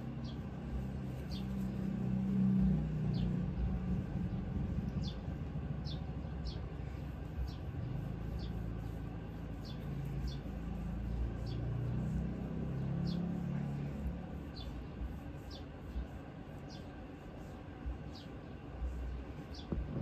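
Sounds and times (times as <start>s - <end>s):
low rumble: 0.0s - 16.2s, 18.8s - 20.0s
small bird chirping: 0.0s - 20.0s.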